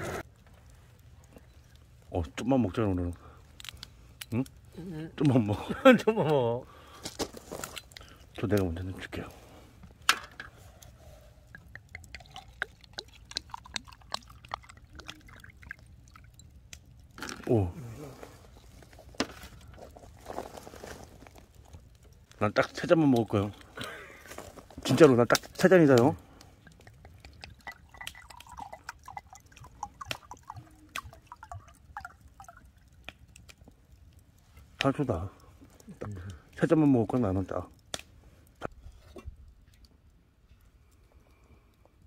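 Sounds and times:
liquid pouring into a glass: 11.5 - 17.2, 26.7 - 33.1.

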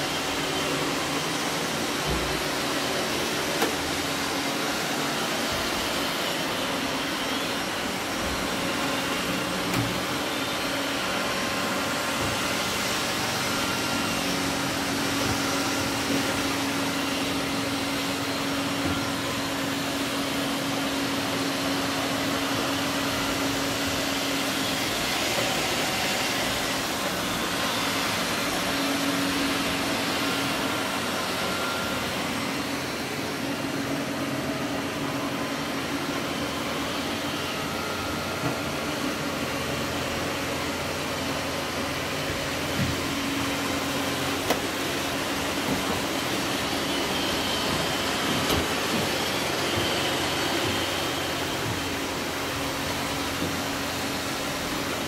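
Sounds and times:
robot vacuum cleaners whirring: 0.0 - 55.0.

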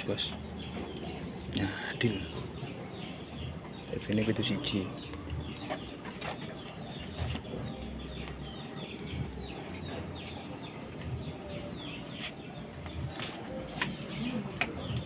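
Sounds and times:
birds chirping: 0.0 - 15.0.

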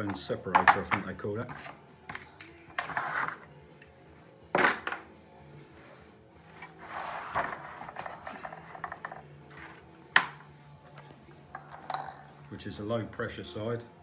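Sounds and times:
metal clunks and scraping on bench: 6.6 - 10.4.

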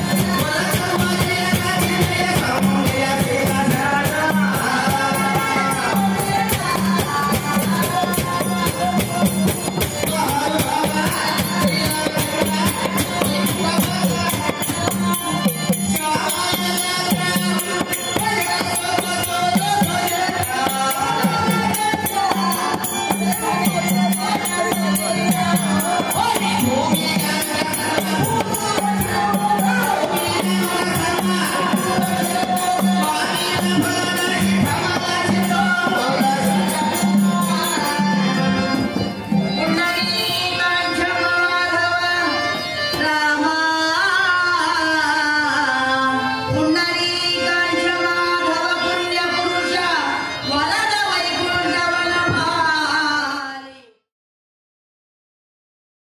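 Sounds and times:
percussion clicking: 0.0 - 38.1
drums: 0.0 - 39.6
voices singing: 0.0 - 53.2
harmonium: 0.0 - 54.0.

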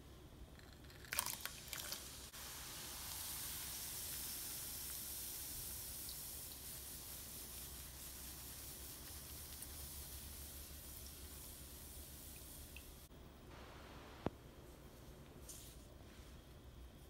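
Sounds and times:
hot oil crackling and spattering: 0.6 - 13.1
oil sizzling: 0.6 - 13.1.

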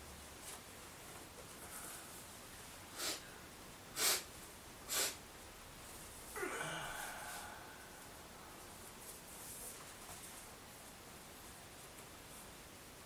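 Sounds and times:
man breathing sharply through nose: 2.9 - 3.4, 4.0 - 4.3, 4.9 - 5.2, 6.4 - 8.0.

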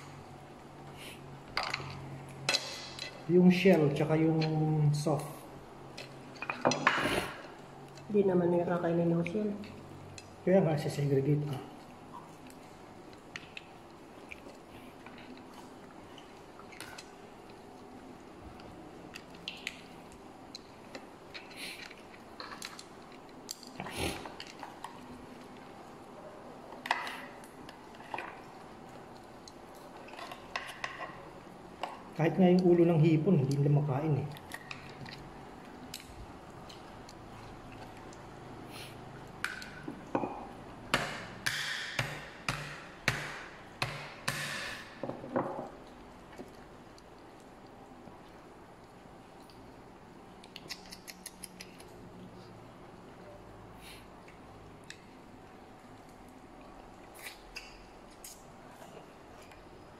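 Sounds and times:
chewing: 5.3 - 10.4, 11.5 - 32.6, 33.4 - 40.7, 45.7 - 59.9
wooden pestle knocking crab shell: 40.9 - 44.7.

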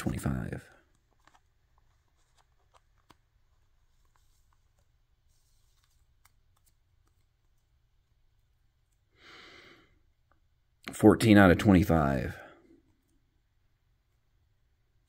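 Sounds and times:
card sliding into plastic sleeve: 0.9 - 7.6.

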